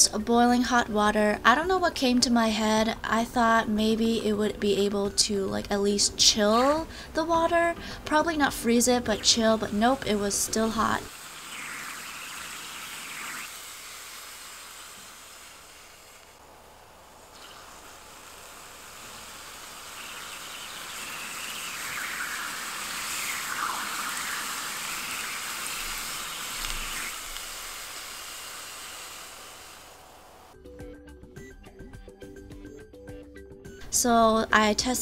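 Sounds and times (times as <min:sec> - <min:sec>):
aerosol spray hissing: 0:09.0 - 0:30.5.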